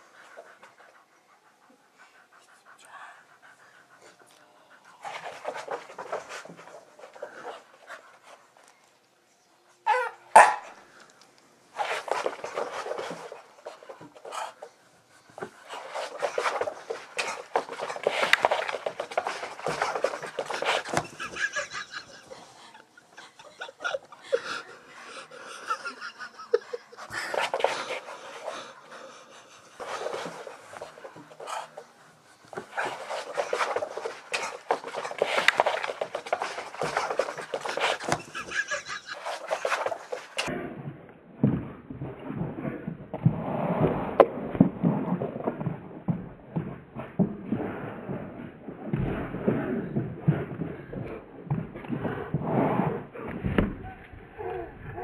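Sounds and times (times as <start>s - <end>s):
dog panting hard: 0.0s - 8.7s, 11.7s - 40.5s
dog movement noise: 5.0s - 8.4s, 11.7s - 40.5s.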